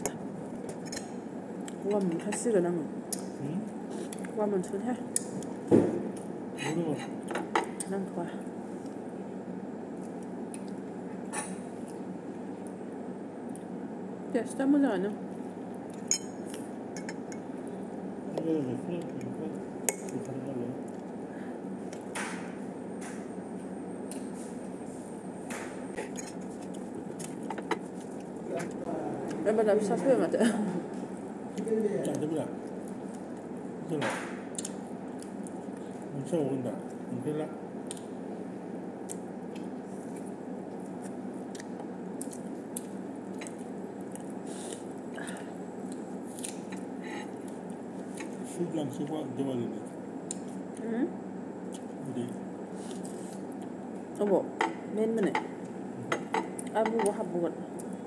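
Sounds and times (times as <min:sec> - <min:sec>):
steady background hum: 0:00.0 - 0:58.0
person chewing food: 0:39.0 - 0:48.4.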